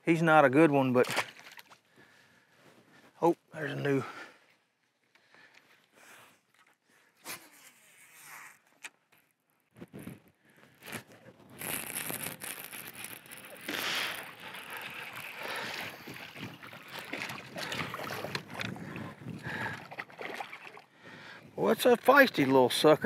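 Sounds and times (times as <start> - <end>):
fish splashing at water surface: 11.7 - 18.7, 19.4 - 20.9.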